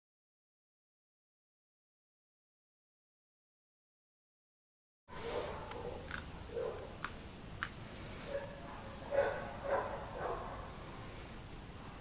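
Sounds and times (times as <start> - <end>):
dog barking: 5.1 - 7.0, 8.2 - 11.2.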